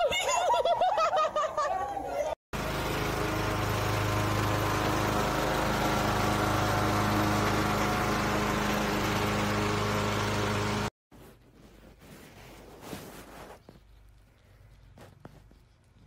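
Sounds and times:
riding lawn mower engine running: 0:02.6 - 0:10.9.

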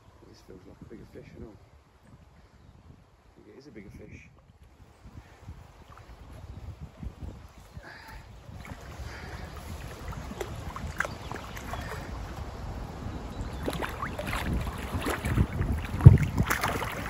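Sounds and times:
wind buffeting microphone: 0:00.0 - 0:17.0
fish splashing at the surface: 0:13.6 - 0:17.0.

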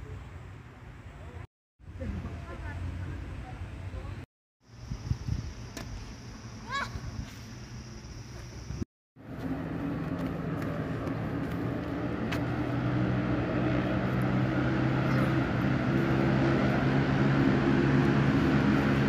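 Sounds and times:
low engine drone: 0:09.2 - 0:19.0.

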